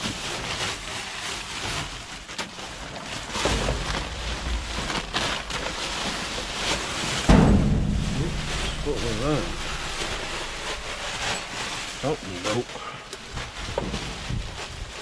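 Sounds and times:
faint knocks and rustles: 2.8s - 12.2s
wind buffeting microphone: 3.5s - 12.1s.

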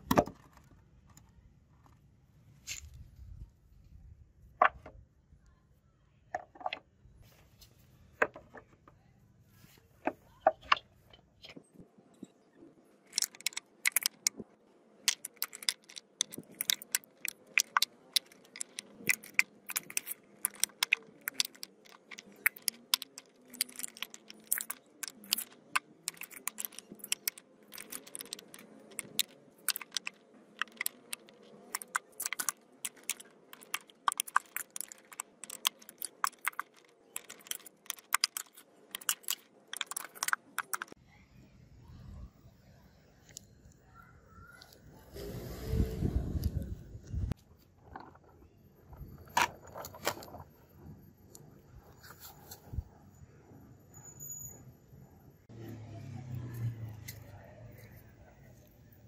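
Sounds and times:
metal ingots clinking: 15.1s - 41.0s.

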